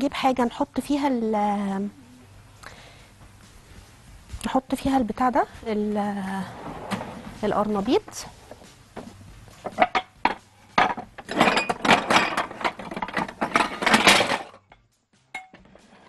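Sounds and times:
dishes clinking and knocking: 0:08.5 - 0:14.7, 0:15.3 - 0:16.0
dishes and utensils clattering: 0:09.6 - 0:14.6, 0:15.3 - 0:16.0.

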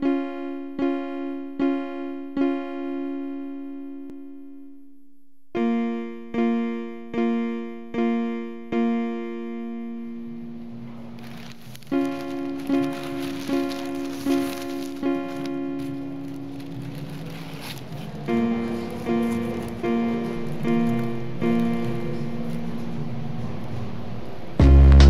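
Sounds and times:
electric piano chords: 0:00.0 - 0:25.0
background hiss: 0:09.9 - 0:25.0.

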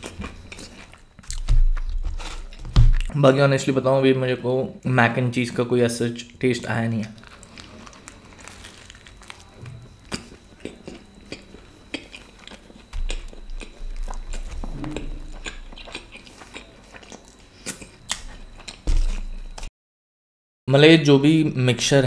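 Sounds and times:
chewing crunchy pizza: 0:00.0 - 0:03.1, 0:07.0 - 0:19.7
low rumble: 0:13.9 - 0:15.8.

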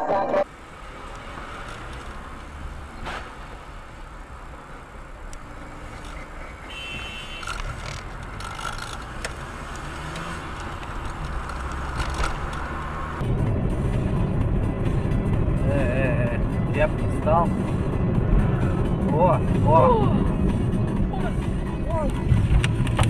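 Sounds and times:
car engine and tyre noise: 0:00.0 - 0:23.0.

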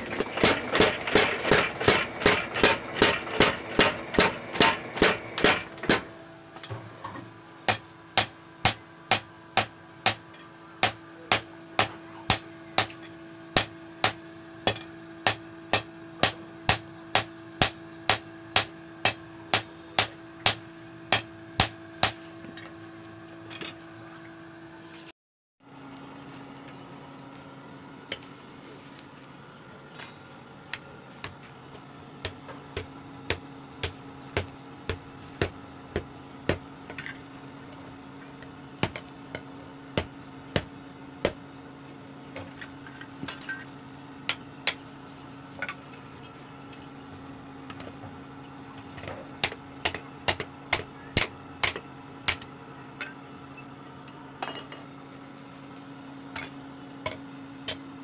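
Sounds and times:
hammer striking hot steel: 0:00.0 - 0:06.1, 0:07.7 - 0:22.3, 0:32.2 - 0:37.0, 0:49.4 - 0:52.5
steady low hum: 0:00.0 - 0:25.1, 0:25.7 - 0:58.0.

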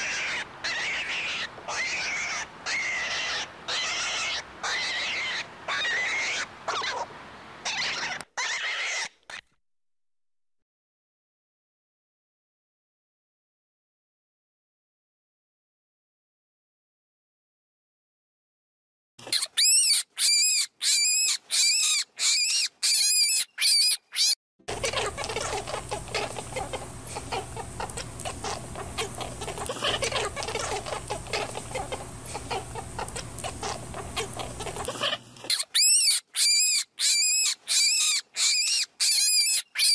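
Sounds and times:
young animal peeping: 0:00.0 - 0:09.5, 0:19.2 - 0:39.9.

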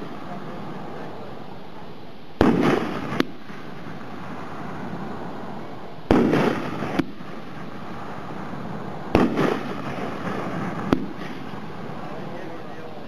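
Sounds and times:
firework hissing crackle: 0:00.0 - 0:13.0
firework shell bang: 0:02.4 - 0:03.7, 0:06.1 - 0:07.2, 0:09.1 - 0:11.5
sharp firework pops: 0:02.4 - 0:04.8, 0:06.1 - 0:11.7.

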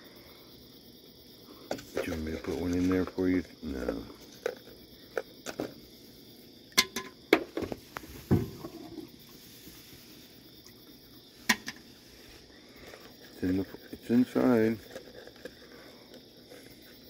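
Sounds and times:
raccoons feeding clicks and knocks: 0:01.6 - 0:09.1, 0:12.6 - 0:17.0.

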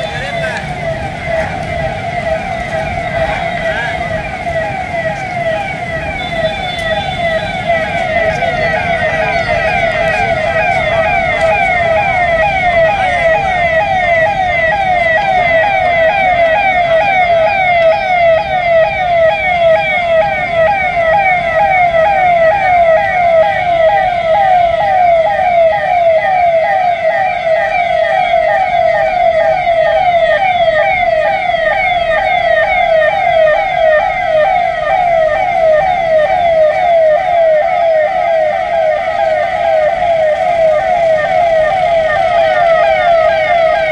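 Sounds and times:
electronic police siren: 0:00.0 - 0:43.9.

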